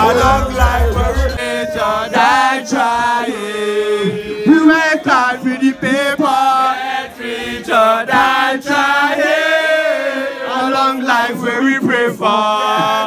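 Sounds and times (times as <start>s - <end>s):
man singing into microphone: 0.0s - 6.7s, 10.7s - 13.0s.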